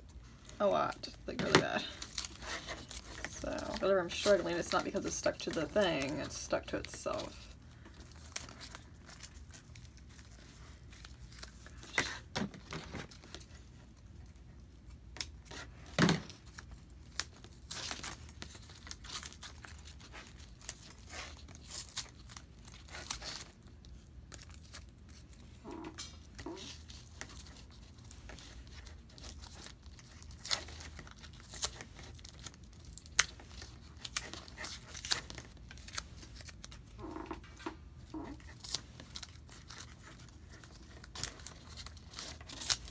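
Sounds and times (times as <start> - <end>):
tape ripping and crinkling: 0.4 - 13.6, 14.3 - 42.9.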